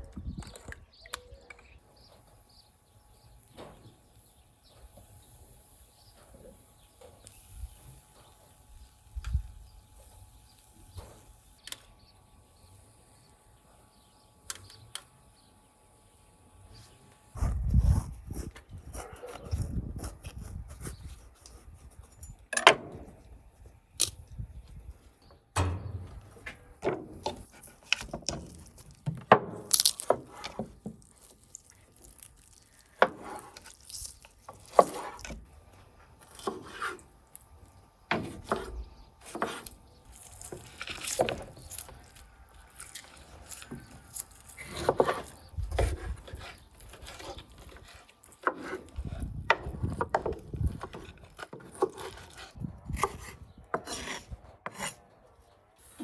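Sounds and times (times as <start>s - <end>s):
soft rubbing of meat: 31.0s - 35.2s.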